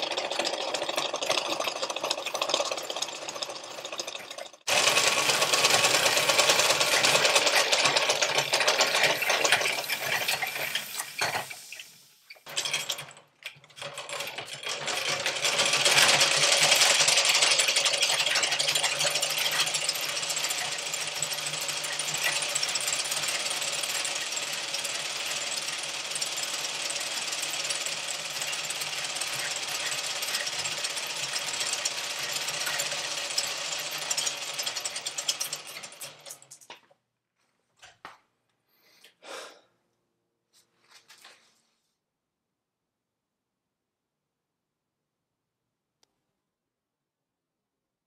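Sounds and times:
treadle lathe mechanical clatter: 0.0 - 36.9.

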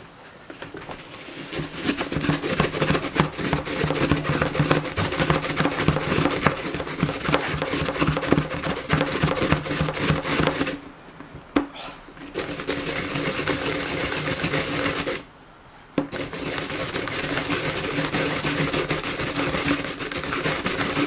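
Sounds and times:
radish rasping on grater: 1.5 - 10.8, 12.2 - 15.2, 16.1 - 21.0
low steady buzz: 15.1 - 16.1.

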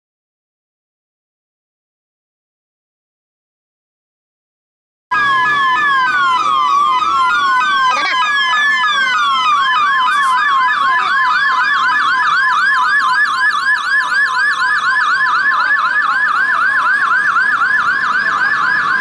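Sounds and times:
fast yelp siren: 5.1 - 19.0
wailing siren: 5.1 - 19.0.

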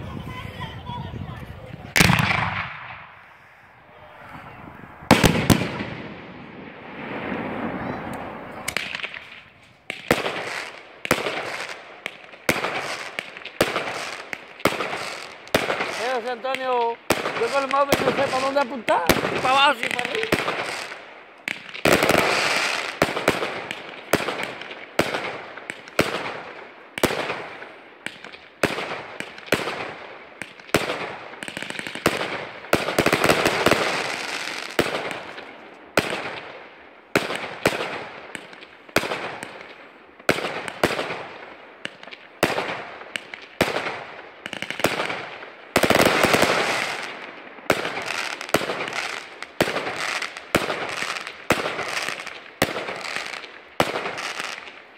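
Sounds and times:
fireworks bursting: 0.0 - 54.9.

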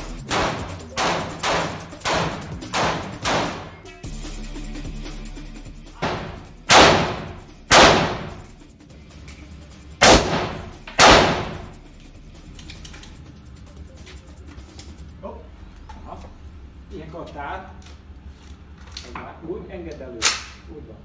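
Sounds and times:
rifle shots ringing indoors: 0.3 - 3.8, 6.0 - 8.6, 10.0 - 11.8, 20.2 - 20.6.

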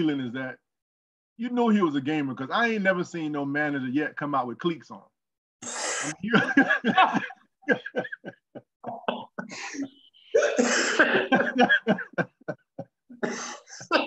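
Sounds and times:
men laughing hard: 6.1 - 14.0.

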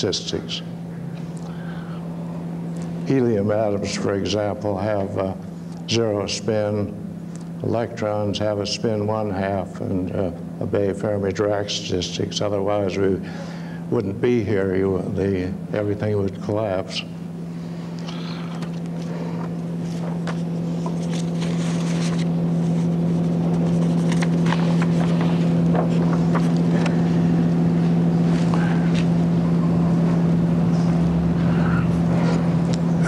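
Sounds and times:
overhead projector fan hum: 0.0 - 33.0
transparency sheets rustling: 18.9 - 27.2.

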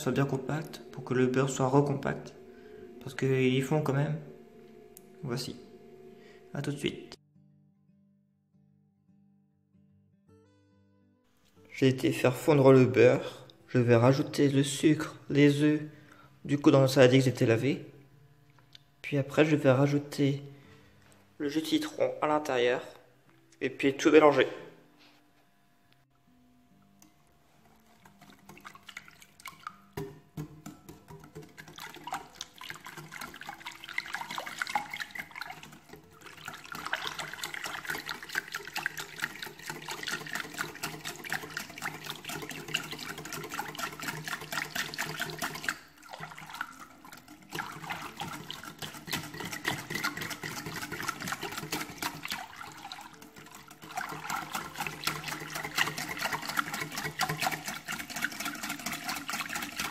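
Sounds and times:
whisk clinking in a glass bowl: 28.0 - 59.9.

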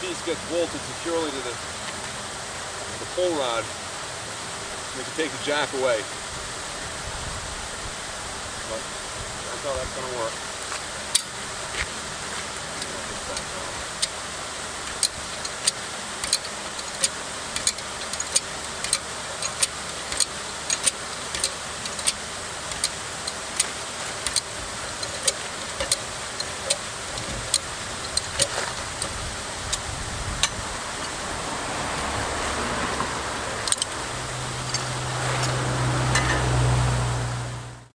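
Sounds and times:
metallic jack clicks: 14.9 - 29.8, 33.6 - 34.0.

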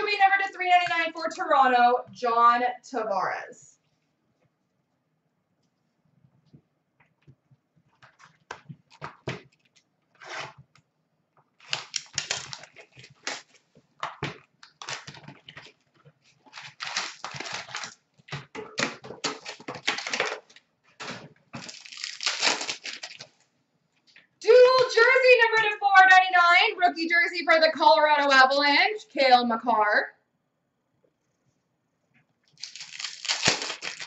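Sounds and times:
wrapper crinkling and tearing: 11.6 - 23.4, 32.5 - 34.0.

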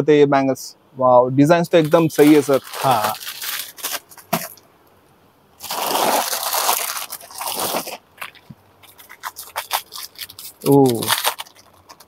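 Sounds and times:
plastic packaging crinkling: 1.7 - 4.6, 5.6 - 12.0.

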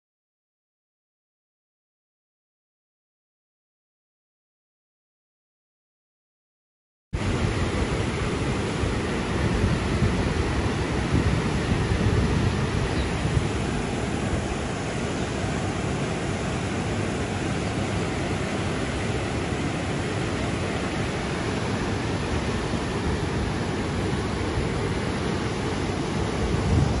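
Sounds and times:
floodwater rushing: 7.2 - 27.0.

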